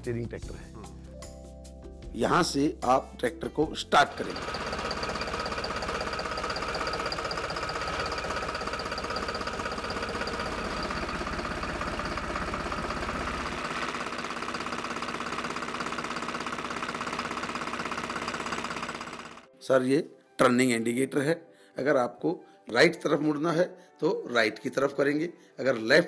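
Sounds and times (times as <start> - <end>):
tractor diesel engine idling: 4.1 - 19.4.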